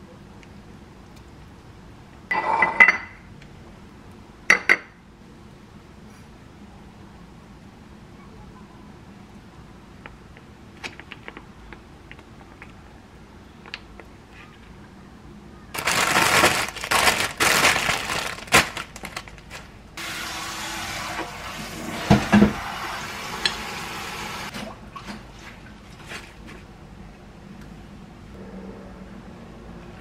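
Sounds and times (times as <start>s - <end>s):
leaves rustling: 15.8s - 19.8s
plastic bag crinkling: 15.8s - 19.8s.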